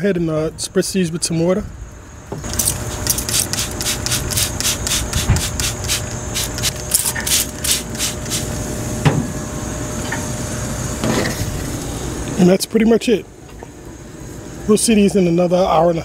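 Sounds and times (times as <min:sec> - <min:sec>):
steady hum: 0:01.7 - 0:16.0
spray bottle spritzing: 0:02.5 - 0:08.5.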